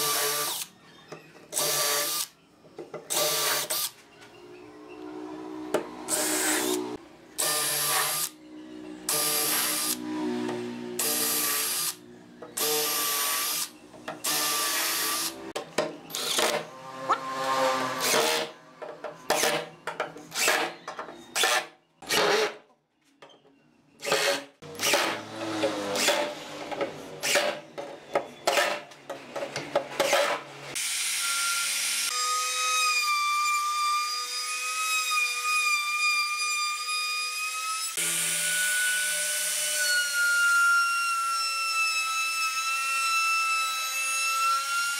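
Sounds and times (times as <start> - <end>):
router whining: 0.0 - 2.3, 3.0 - 22.5, 24.0 - 27.8.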